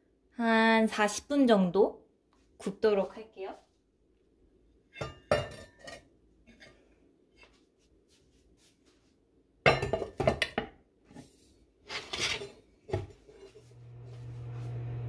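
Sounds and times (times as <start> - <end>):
cast iron pot and lid clattering: 4.9 - 6.8, 9.7 - 10.7
pot scraping: 11.2 - 15.0.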